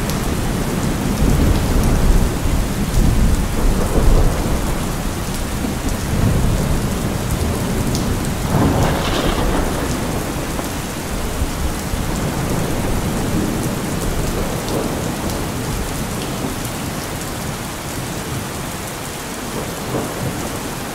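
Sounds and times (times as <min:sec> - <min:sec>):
low rolling thunder: 0:00.0 - 0:16.6
steady rain: 0:00.0 - 0:20.9.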